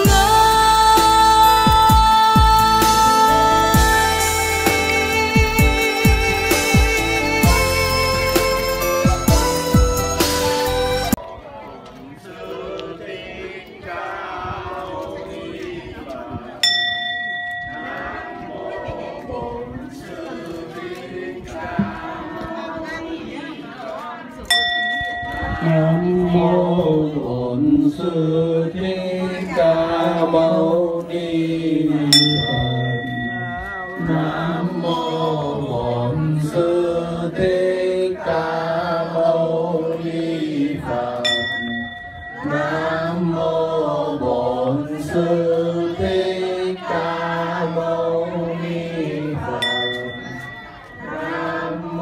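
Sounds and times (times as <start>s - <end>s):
group of voices chanting: 11.2s - 16.7s, 17.7s - 24.4s, 33.7s - 41.5s, 42.3s - 52.0s
bowl bell ringing: 16.6s - 18.5s, 24.5s - 26.3s, 32.1s - 35.0s, 41.2s - 43.2s, 49.6s - 52.0s.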